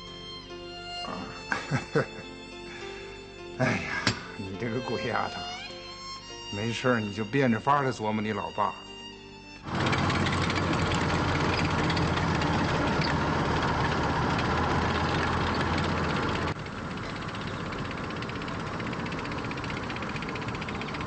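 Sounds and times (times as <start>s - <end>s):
vehicle engines rumbling: 9.6s - 21.0s.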